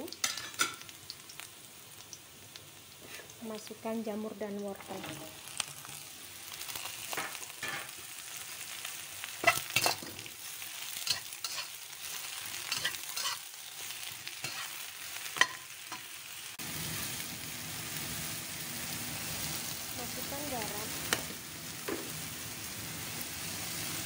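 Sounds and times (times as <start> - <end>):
vegetables sizzling in a wok: 0.0 - 24.0
utensil scraping a wok: 9.4 - 16.1.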